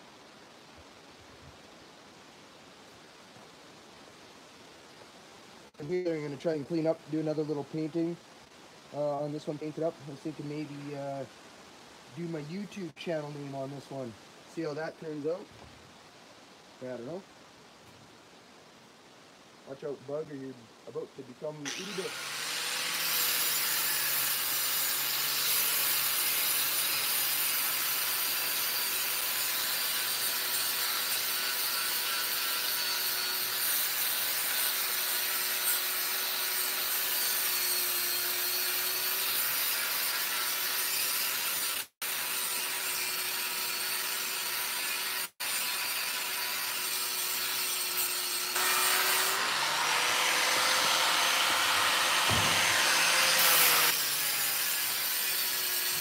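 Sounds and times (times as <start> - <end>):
angle grinder grinding steel: 21.7 - 56.0.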